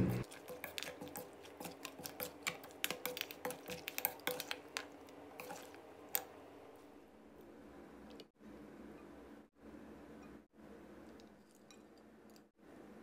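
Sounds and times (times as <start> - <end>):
wet salad squishing: 0.2 - 6.3.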